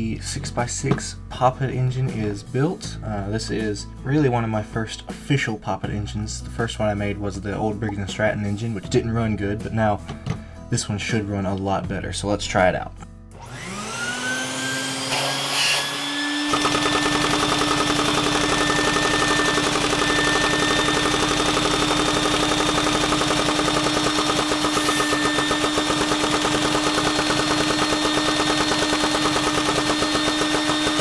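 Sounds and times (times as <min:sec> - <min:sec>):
vacuum cleaner motor whine: 0:13.4 - 0:31.0
small engine clattering: 0:16.5 - 0:31.0.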